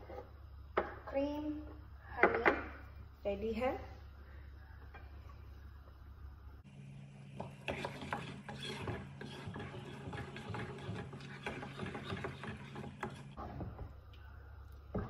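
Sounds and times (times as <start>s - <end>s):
spatula scraping a pot: 7.4s - 13.6s.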